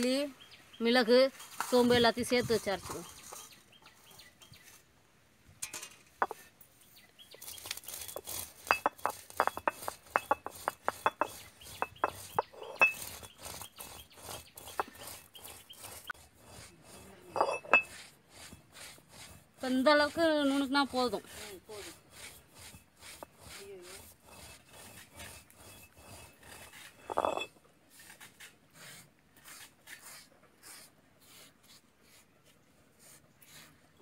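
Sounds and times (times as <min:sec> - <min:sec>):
seeds cracking: 0:07.4 - 0:08.7
stone roller clacking on stone: 0:07.9 - 0:16.2, 0:16.8 - 0:18.0, 0:22.3 - 0:27.6.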